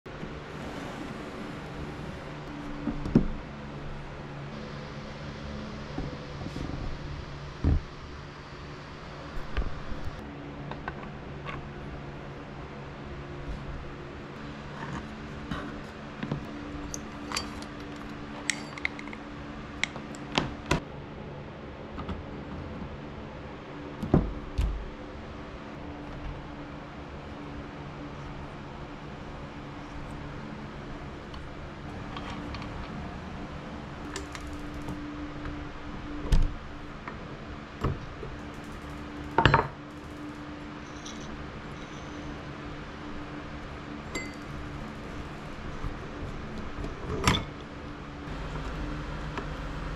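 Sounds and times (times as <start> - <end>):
steady low hum: 0.1 - 49.9
metallic clicks and clatter: 16.7 - 20.4, 34.0 - 35.5, 38.0 - 42.1
metal tools clinking: 16.8 - 19.2, 44.1 - 44.7.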